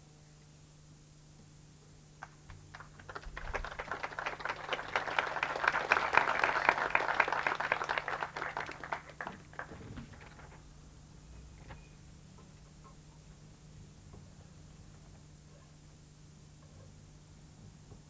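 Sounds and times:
audience applauding: 2.2 - 10.4.

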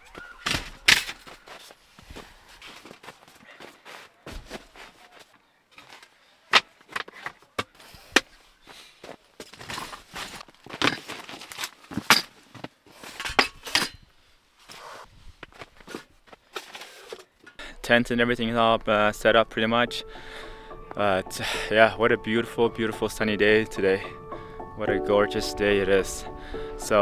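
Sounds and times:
camping gear clicks and rustles: 0.0 - 17.6.

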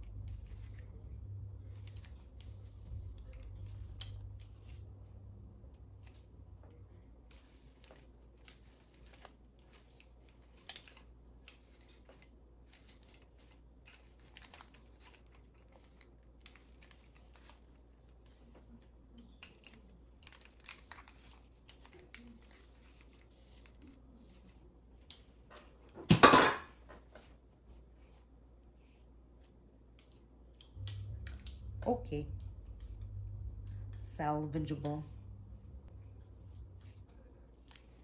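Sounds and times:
curling iron clicks and hair rustles: 7.2 - 24.0.

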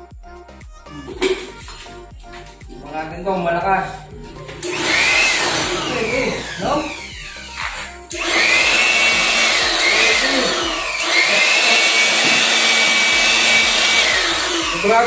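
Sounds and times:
electric air blower running: 4.4 - 15.0.

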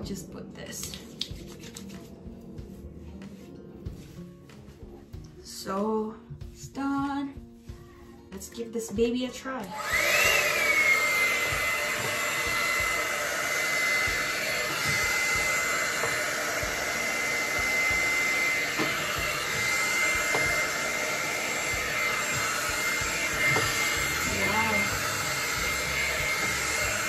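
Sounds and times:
hair dryer brush motor whine: 9.6 - 27.0.

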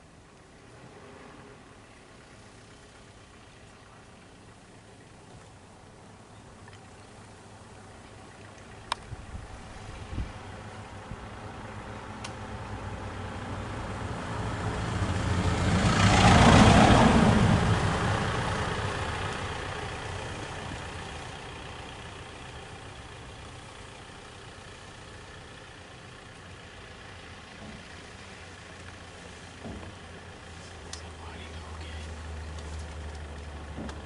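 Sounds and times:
vehicle driving past: 0.6 - 4.2, 8.1 - 24.2.

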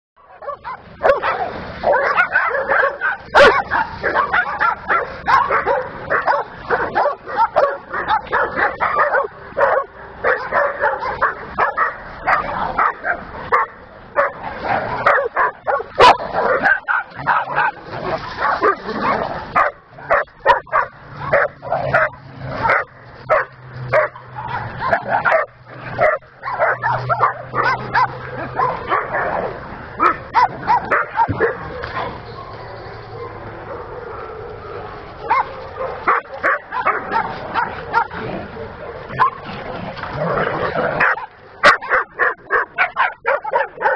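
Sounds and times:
dogs barking and yipping: 0.2 - 43.9.

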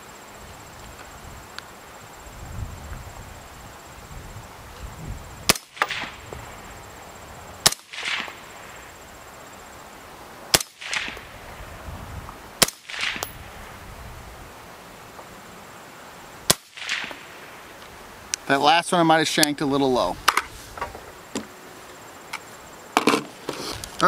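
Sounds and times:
suppressed rifle shots: 5.5 - 6.2, 7.6 - 8.4, 10.5 - 11.3, 12.6 - 13.4, 16.5 - 17.4.

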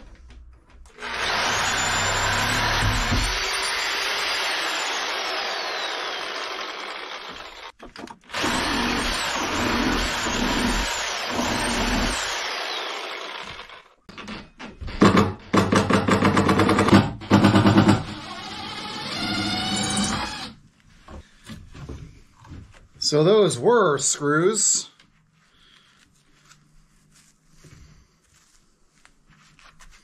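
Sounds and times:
reciprocating saw cutting wood: 1.0 - 13.9.

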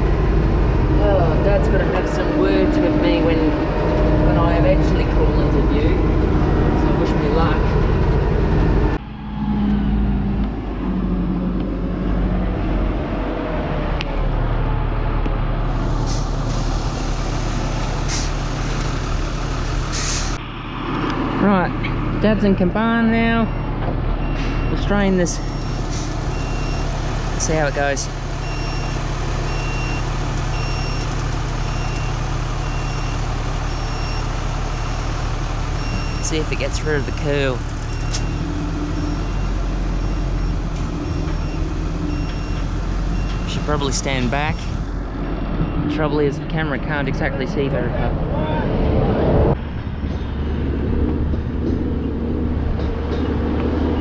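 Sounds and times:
diesel engine running: 0.0 - 54.0
reversing alarm beeping: 23.2 - 26.9, 28.4 - 46.1.

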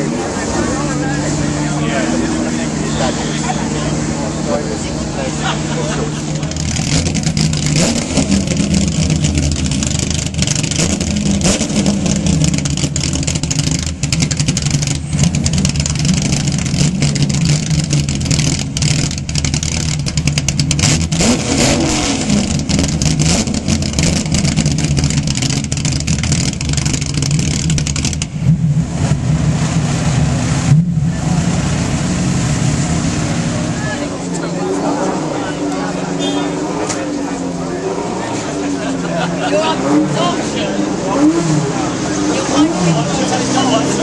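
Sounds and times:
car engine idling loudly: 0.0 - 44.0.

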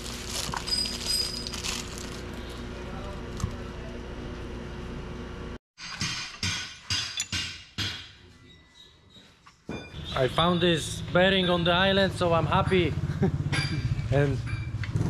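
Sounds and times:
sharp metallic knocks: 5.8 - 8.2.

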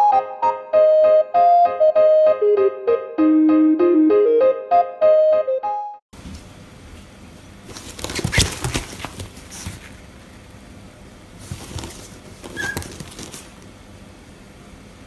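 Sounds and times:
scratching and rustling fabric: 7.6 - 10.4, 11.4 - 13.6
dog squeak: 12.5 - 13.0.

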